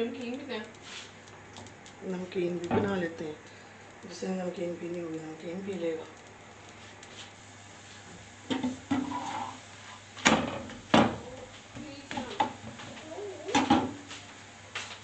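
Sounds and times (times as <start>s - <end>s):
metal spatula scraping frying pan: 8.9s - 9.6s.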